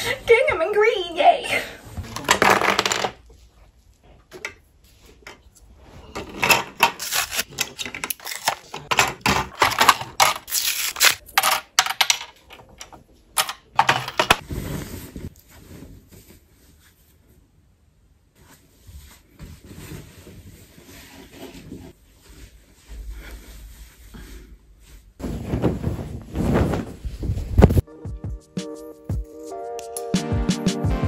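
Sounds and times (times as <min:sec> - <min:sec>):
plastic bobbins clicking and rattling: 0:06.4 - 0:14.4.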